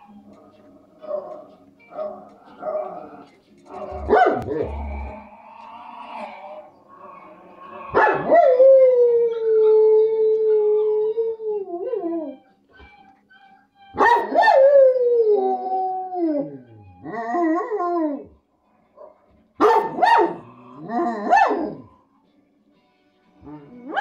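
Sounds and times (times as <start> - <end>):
dog howling: 2.0 - 18.4, 19.8 - 22.0.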